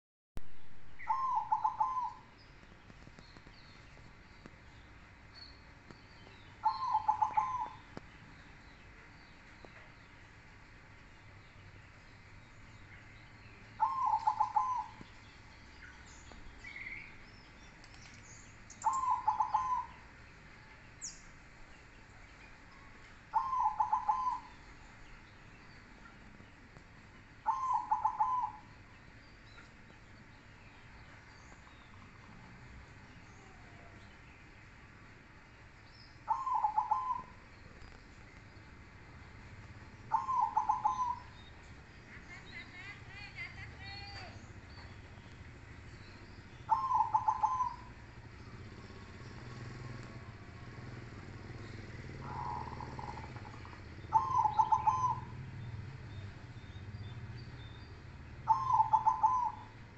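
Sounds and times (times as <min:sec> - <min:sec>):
dove cooing: 0:01.0 - 0:02.3, 0:06.6 - 0:07.9, 0:13.8 - 0:15.0, 0:18.8 - 0:20.0, 0:23.3 - 0:24.6, 0:27.4 - 0:28.7, 0:36.3 - 0:38.0, 0:40.0 - 0:41.4, 0:46.6 - 0:55.4, 0:58.4 - 0:59.8.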